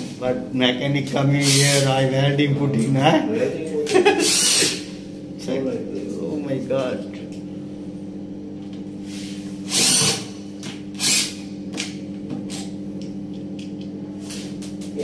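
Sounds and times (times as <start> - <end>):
steady low hum: 0.0 - 15.0
cordless drill driving screw: 4.3 - 4.8, 9.7 - 10.2, 11.0 - 11.4.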